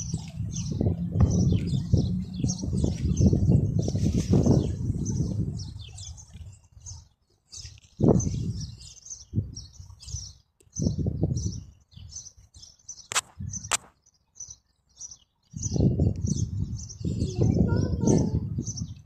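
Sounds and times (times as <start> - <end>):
low rumbles: 0.0 - 6.6
small birds chirping: 0.0 - 19.0.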